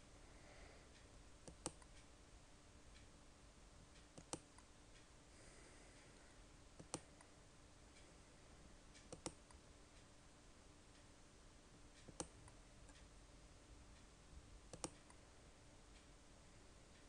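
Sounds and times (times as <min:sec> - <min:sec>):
faint room hum: 0:00.0 - 0:17.0
computer mouse clicks: 0:01.4 - 0:02.1, 0:04.0 - 0:04.7, 0:06.8 - 0:07.3, 0:09.0 - 0:09.6, 0:12.0 - 0:13.1, 0:14.7 - 0:15.2.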